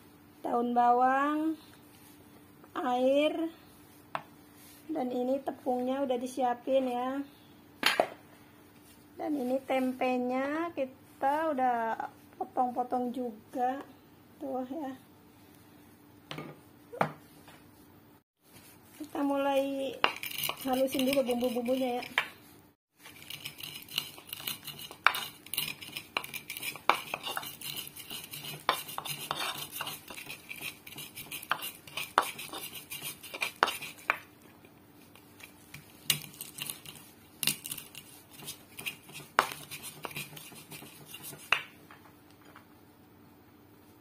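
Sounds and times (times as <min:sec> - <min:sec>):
stone pestle grinding in mortar: 0:19.9 - 0:22.3, 0:23.0 - 0:34.2, 0:35.1 - 0:41.7.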